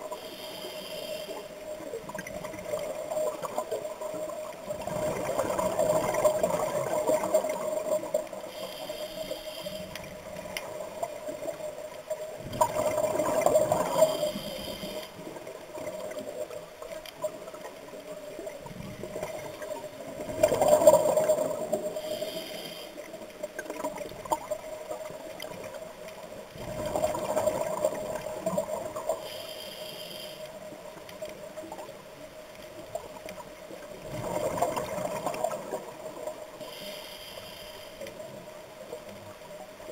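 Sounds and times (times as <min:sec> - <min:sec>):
regulator breathing hiss: 0:00.1 - 0:01.6, 0:08.4 - 0:10.0, 0:13.8 - 0:15.2, 0:21.9 - 0:23.1, 0:29.1 - 0:30.5, 0:36.6 - 0:38.1
exhaled bubbles: 0:04.6 - 0:08.4, 0:12.4 - 0:14.5, 0:34.0 - 0:36.2.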